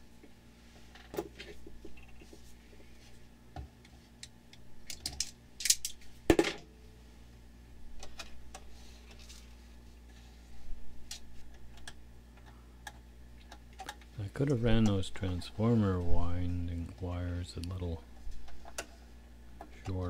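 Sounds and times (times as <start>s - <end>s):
tools clicking and rattling: 4.2s - 6.0s.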